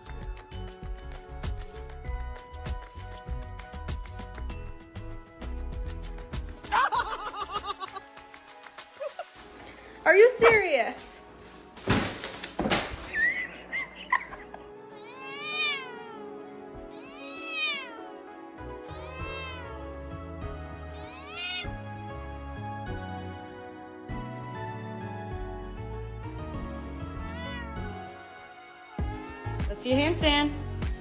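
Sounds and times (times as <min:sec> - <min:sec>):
cat meowing: 0:14.9 - 0:18.2, 0:18.8 - 0:19.8, 0:20.9 - 0:21.8, 0:27.2 - 0:28.0, 0:29.0 - 0:29.7.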